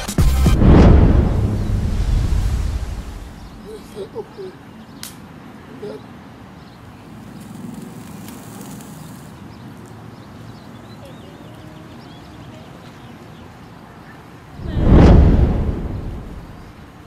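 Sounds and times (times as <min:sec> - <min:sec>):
low outdoor rumble: 0:00.5 - 0:04.2, 0:14.6 - 0:17.0.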